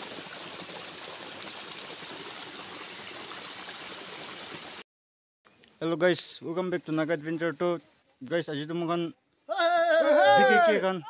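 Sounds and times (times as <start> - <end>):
water splashing over rocks: 0.0 - 4.8.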